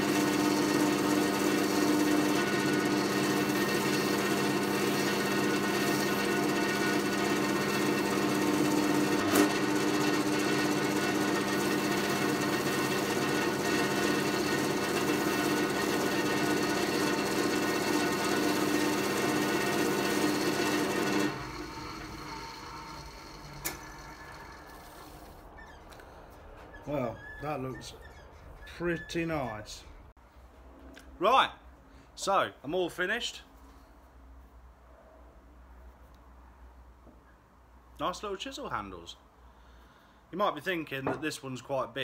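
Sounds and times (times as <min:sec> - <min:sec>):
wood lathe motor humming: 0:00.0 - 0:26.0.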